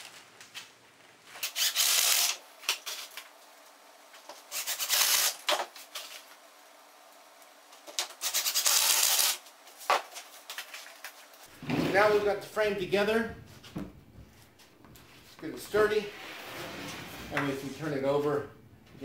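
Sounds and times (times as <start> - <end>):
impact driver driving screws: 1.4 - 3.0, 4.5 - 5.6.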